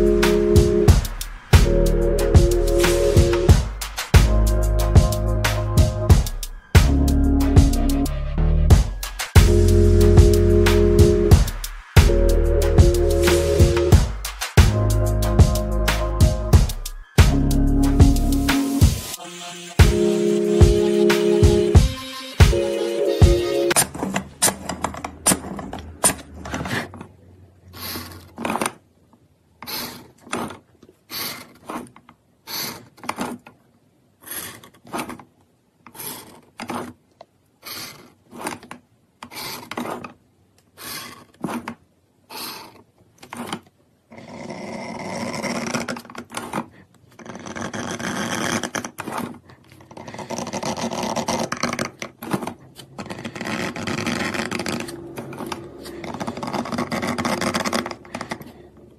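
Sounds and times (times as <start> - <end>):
scribing tool scratching plate: 23.7 - 27.2, 27.8 - 28.8, 29.6 - 33.5, 34.2 - 35.3, 35.9 - 37.0, 37.6 - 40.2, 40.8 - 58.8.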